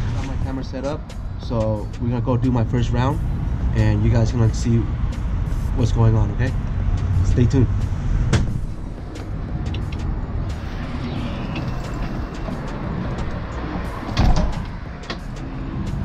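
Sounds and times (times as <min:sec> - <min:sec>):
rattles and clicks: 0:07.8 - 0:16.0
loud thump: 0:08.3 - 0:09.0.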